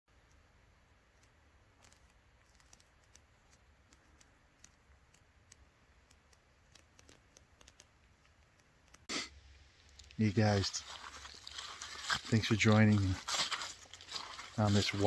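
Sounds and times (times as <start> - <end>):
small clicks: 1.1 - 9.1.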